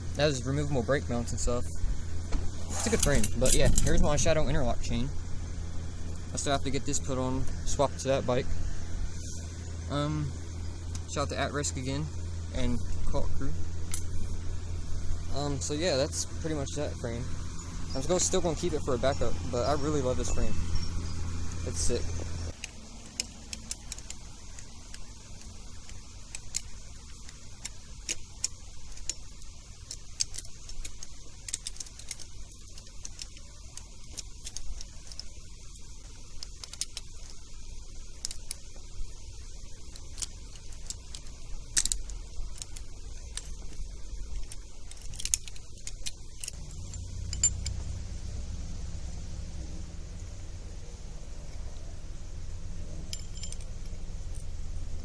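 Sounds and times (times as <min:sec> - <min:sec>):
metallic clinks of tools: 0:17.5 - 0:24.6, 0:40.0 - 0:47.9, 0:53.0 - 0:54.5.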